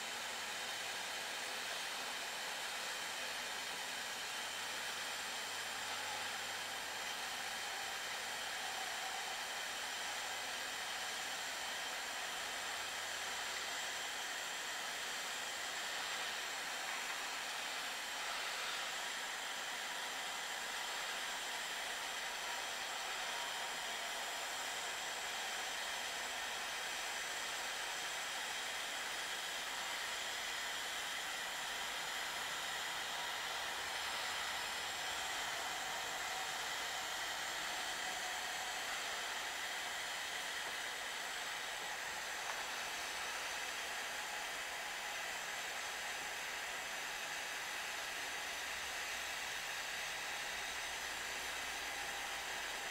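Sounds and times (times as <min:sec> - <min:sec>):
gas soldering iron hissing: 0:00.0 - 0:52.9.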